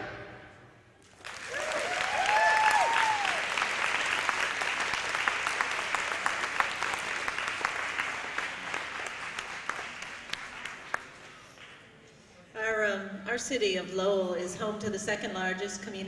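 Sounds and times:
audience applause: 0:01.0 - 0:11.4.

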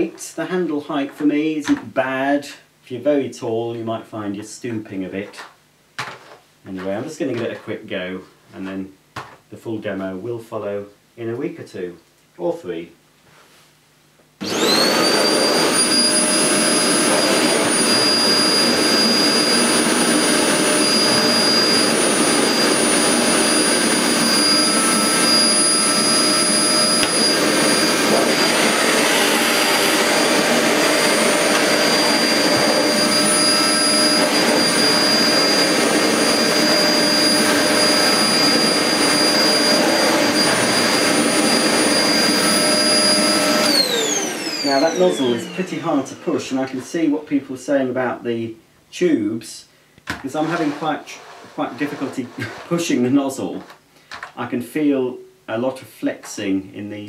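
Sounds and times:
vacuum cleaner running: 0:14.4 - 0:47.4, 0:50.1 - 0:53.8
nozzle pushed over carpet: 0:14.5 - 0:46.9, 0:50.1 - 0:53.7.

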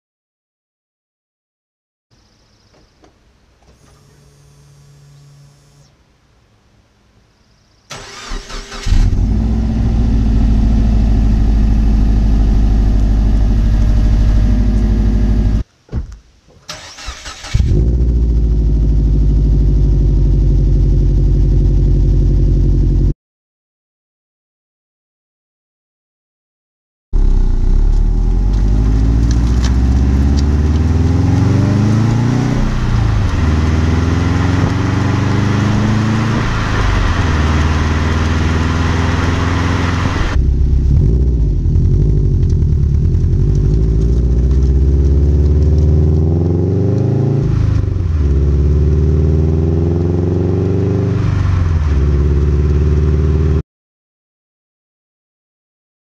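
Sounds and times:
car exhaust revving: 0:08.0 - 0:15.6, 0:17.5 - 0:23.1, 0:27.2 - 0:53.6.

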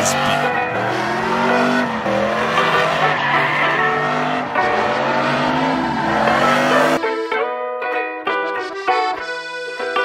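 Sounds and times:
truck engine at high revs: 0:00.0 - 0:07.0
tyres squealing on pavement: 0:01.4 - 0:07.0.

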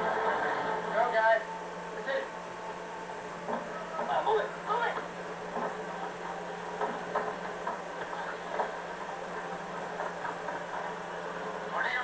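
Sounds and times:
faint irregular knocks: 0:04.9 - 0:06.0, 0:06.7 - 0:11.0.

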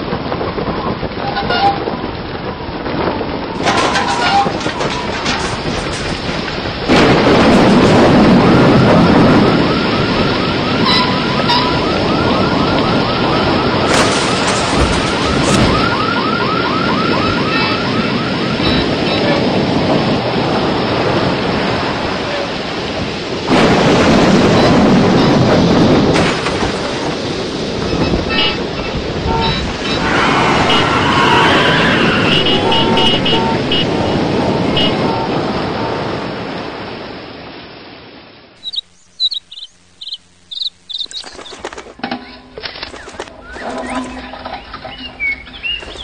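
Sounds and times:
storm wind rushing: 0:00.0 - 0:41.7
warbling chirping tone: 0:38.6 - 0:41.7.

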